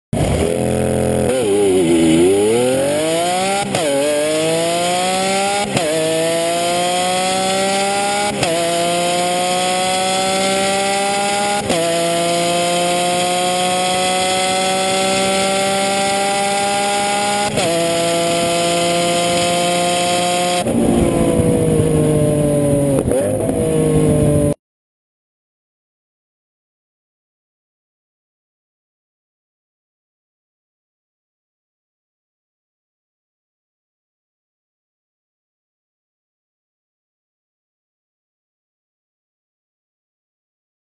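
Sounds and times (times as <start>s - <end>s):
car engine accelerating: 0.2s - 24.6s.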